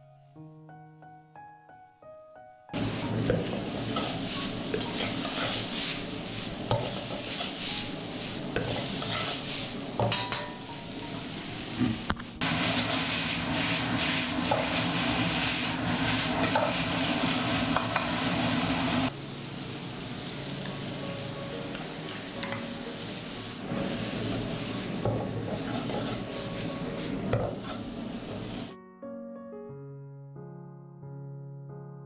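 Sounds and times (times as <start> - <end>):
metal spatula scraping wok: 2.8 - 11.8, 12.6 - 18.8, 23.6 - 28.7
food sizzling in a wok: 2.8 - 28.8.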